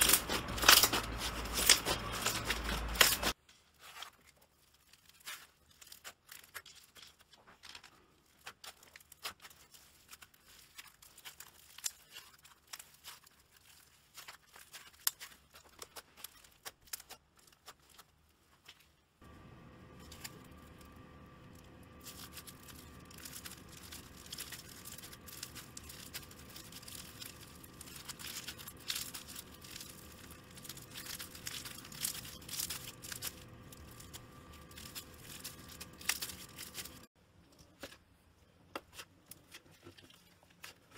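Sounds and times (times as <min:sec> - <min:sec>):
slime crackling and popping: 0:00.0 - 0:18.1, 0:19.8 - 0:37.1
steady hum with faint tone: 0:17.6 - 0:40.9.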